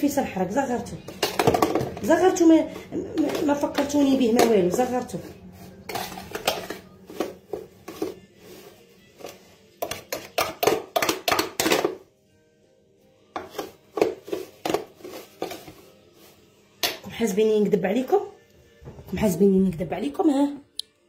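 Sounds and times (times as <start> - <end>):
utensils and baking tray clattering: 0.8 - 12.0, 13.4 - 15.9.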